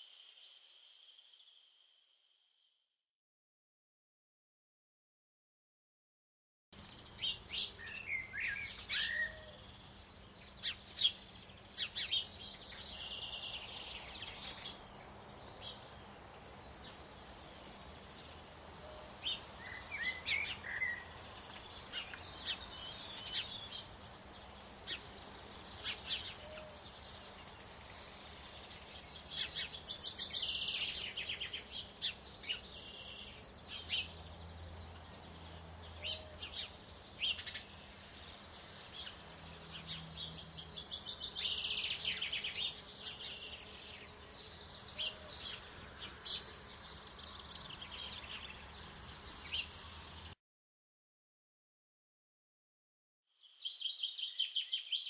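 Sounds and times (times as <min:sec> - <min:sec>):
songbirds chirping and trilling: 0:06.8 - 0:50.4, 0:53.3 - 0:55.0
faint steady hiss: 0:12.1 - 0:32.5.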